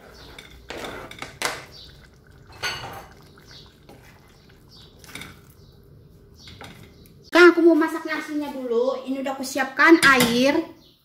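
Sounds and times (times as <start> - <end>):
spatula scraping and knocking a pot: 0.0 - 5.5.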